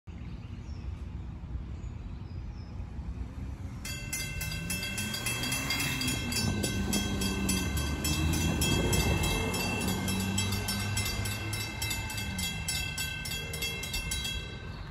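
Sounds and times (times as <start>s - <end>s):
low train rumble: 2.7s - 14.9s
railroad crossing warning bell: 3.6s - 14.9s.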